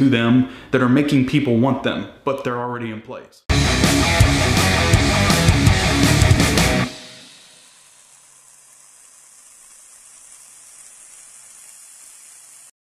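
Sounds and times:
music track: 3.5 - 7.8
faint hiss: 6.9 - 12.7.

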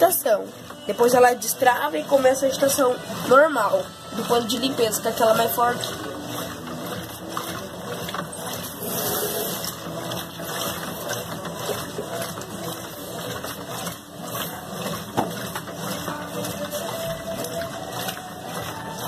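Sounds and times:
agitator churning water: 0.0 - 19.0
washing machine motor hum: 0.0 - 19.0.

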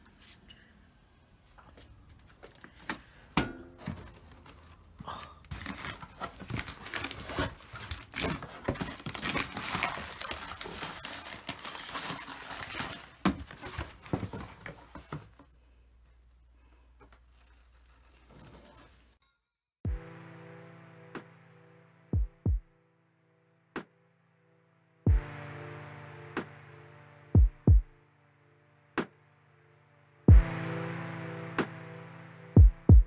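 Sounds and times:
packing paper rustling: 4.0 - 15.2.

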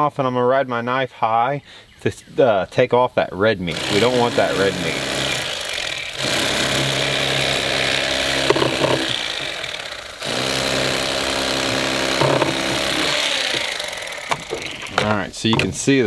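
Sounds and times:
electric fillet knife buzzing: 3.7 - 15.1.

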